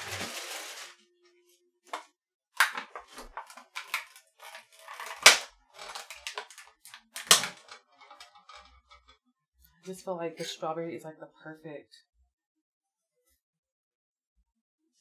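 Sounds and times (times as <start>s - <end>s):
hard objects clicking and knocking: 2.6s - 9.1s.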